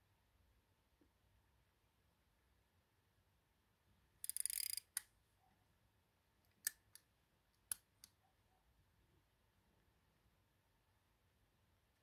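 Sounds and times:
pocket watch clicks: 0:04.2 - 0:05.1.

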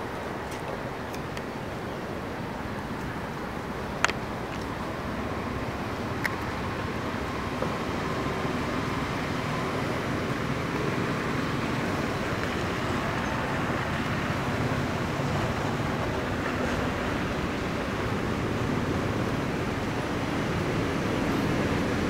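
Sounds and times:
steady rushing background noise: 0:00.0 - 0:22.0.

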